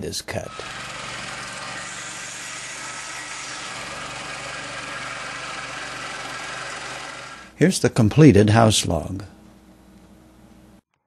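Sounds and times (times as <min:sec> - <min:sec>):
saw blade cutting log: 0:00.5 - 0:07.5.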